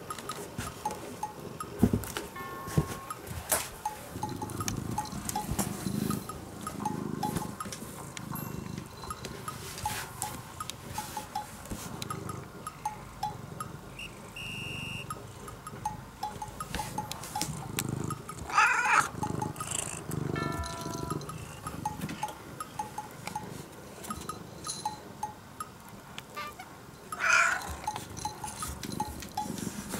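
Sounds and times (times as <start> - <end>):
cat purring: 0.5 - 14.5, 15.1 - 24.5
cat meowing: 18.5 - 19.1, 26.3 - 27.7.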